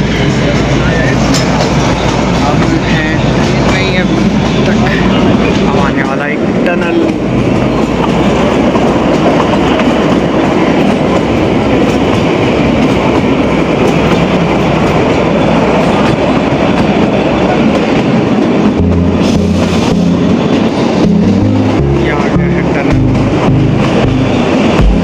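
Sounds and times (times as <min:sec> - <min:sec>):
train coaches running on rails: 0:00.0 - 0:25.0.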